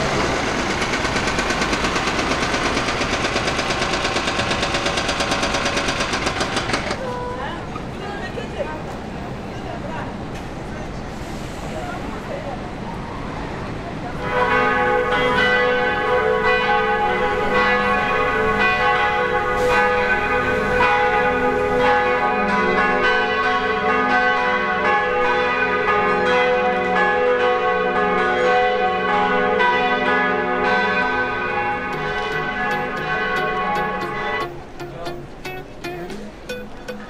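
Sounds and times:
church bells pealing: 14.0 - 37.0.

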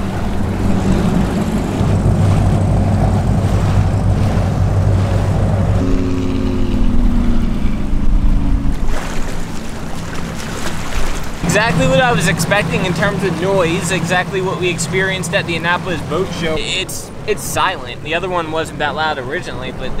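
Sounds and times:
wind buffeting microphone: 0.0 - 18.2
motorboat engine drone: 0.0 - 20.0
water rushing and splashing: 0.0 - 20.0.

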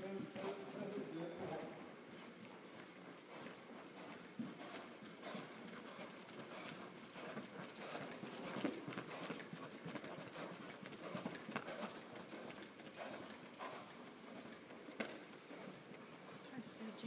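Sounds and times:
horse hoofbeats trotting: 0.0 - 17.0.

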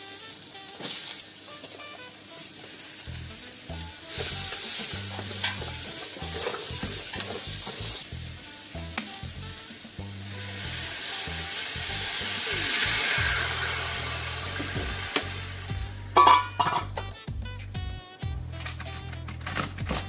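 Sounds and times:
vegetables sizzling in a pot: 0.0 - 17.0
background music: 0.0 - 20.0
metal lid clanking onto pot: 16.2 - 17.1.

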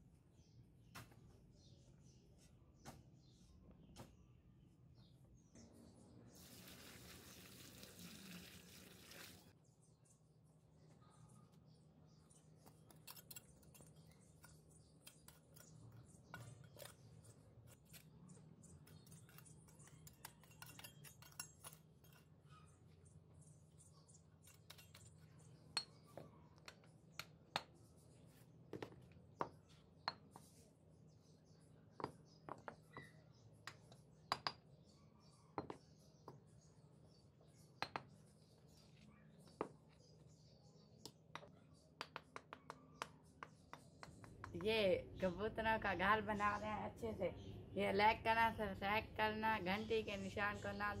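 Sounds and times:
hammer tapping bricks: 41.0 - 44.7.

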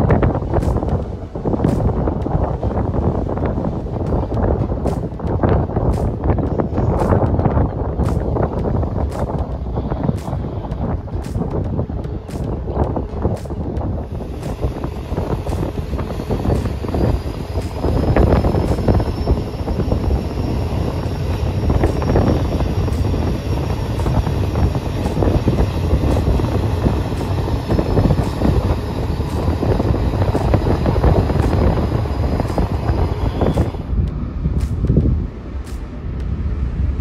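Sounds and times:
steady low rumble: 0.0 - 37.0
wind buffeting microphone: 0.0 - 37.0.

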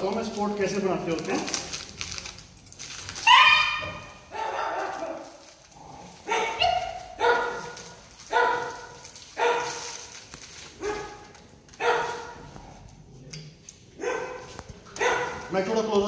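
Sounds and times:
puppy barking in high yips: 3.2 - 5.2, 6.3 - 9.8, 10.8 - 11.2, 11.8 - 12.4, 14.0 - 15.5.

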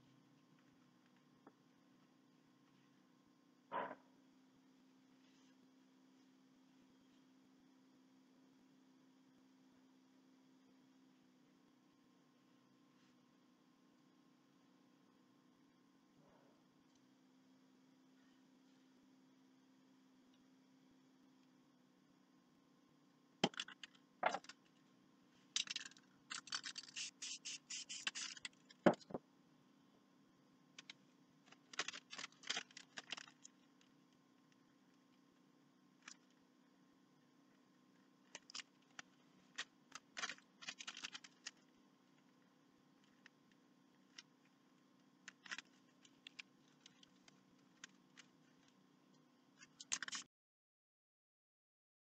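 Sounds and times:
faint steady hum: 0.0 - 50.3
hands and paper scratching board: 25.6 - 29.2, 30.8 - 33.5
scattered clicks: 45.2 - 50.3.

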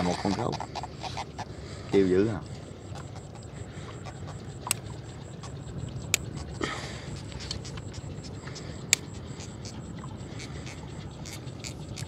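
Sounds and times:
boat engine humming: 0.0 - 12.0
sharp clicks: 4.6 - 5.0, 7.2 - 9.8.

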